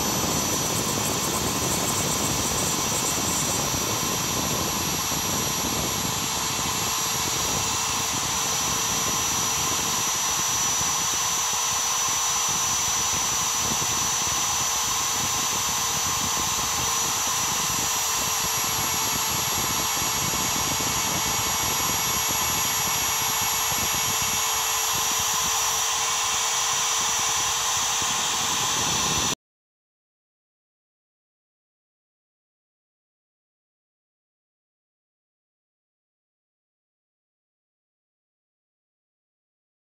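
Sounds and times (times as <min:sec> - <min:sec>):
router spindle whine: 0:00.0 - 0:29.4.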